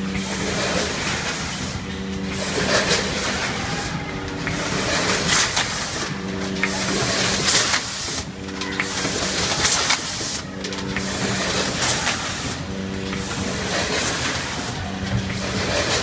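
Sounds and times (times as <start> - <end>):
packaging machine humming: 0.0 - 16.0.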